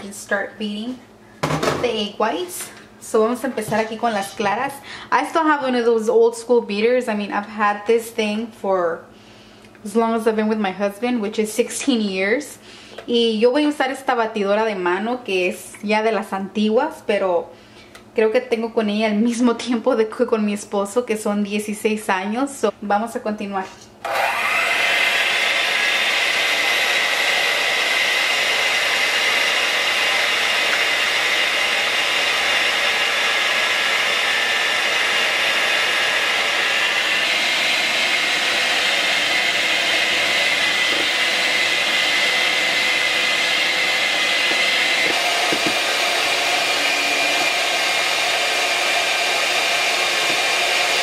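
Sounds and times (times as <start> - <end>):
electric hand mixer whining: 24.0 - 51.0.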